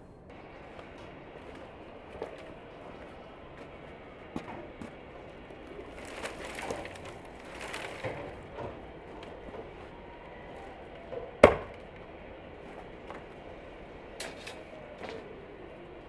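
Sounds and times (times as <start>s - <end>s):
branches rustling and knocking: 5.5s - 9.7s
hatchet chopping wood: 11.4s - 11.8s.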